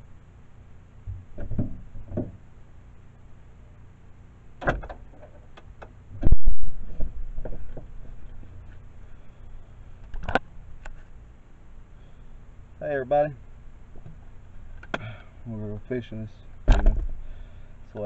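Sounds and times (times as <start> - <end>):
car door dull thuds: 16.7 - 17.2.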